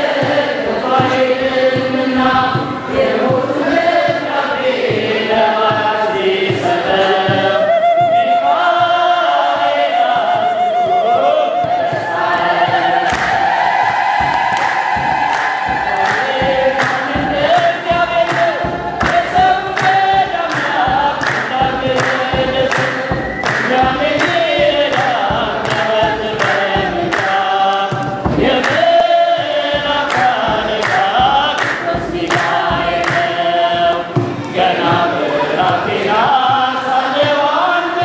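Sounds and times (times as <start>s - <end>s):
choir and congregation singing: 0.0s - 38.0s
drum beats: 0.0s - 38.0s
hand clapping: 12.6s - 38.0s.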